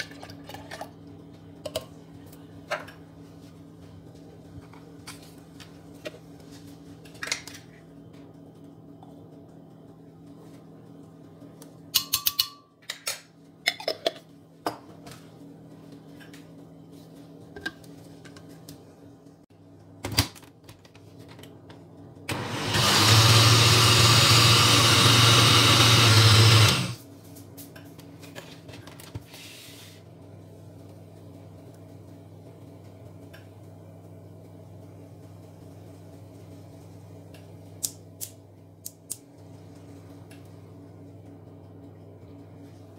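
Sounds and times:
metal spoon clinking on glass: 0:12.0 - 0:12.7
blender running: 0:22.3 - 0:27.0.

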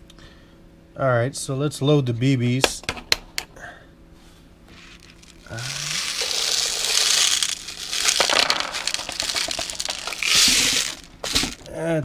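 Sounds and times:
metal pellets rattling: 0:04.8 - 0:11.8.

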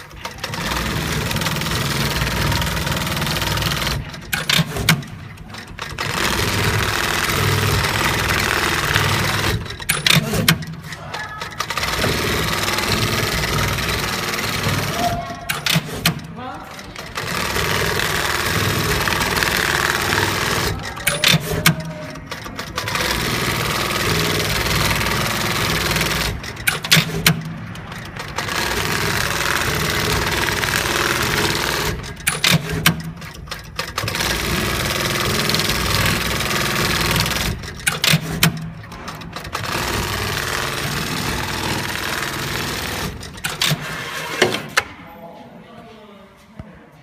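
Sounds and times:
sewing machine stitching: 0:00.0 - 0:44.8.

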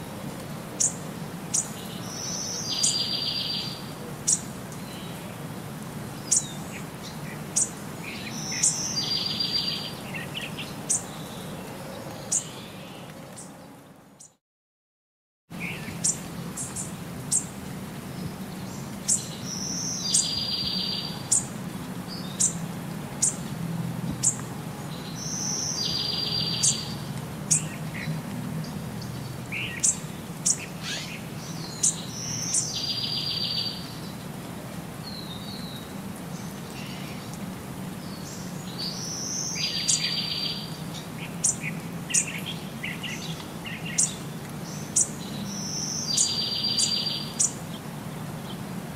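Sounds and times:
bird chirping: 0:00.8 - 0:05.2, 0:06.2 - 0:11.4, 0:15.6 - 0:17.5, 0:18.2 - 0:22.6, 0:24.2 - 0:34.2, 0:38.0 - 0:47.6.

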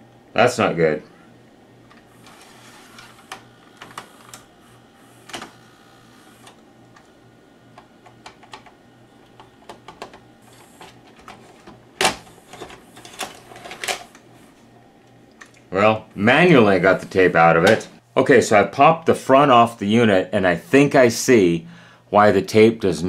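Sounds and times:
plastic clicks from cassette carriage: 0:07.7 - 0:10.2.

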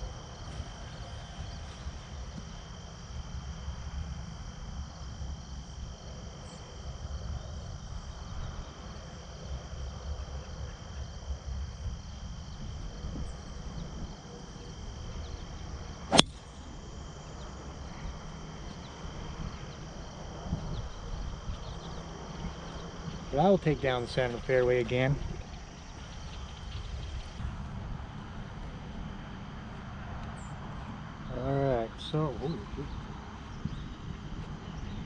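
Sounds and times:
insects droning: 0:00.0 - 0:35.0
golf ball struck off the tee: 0:16.1 - 0:16.7.

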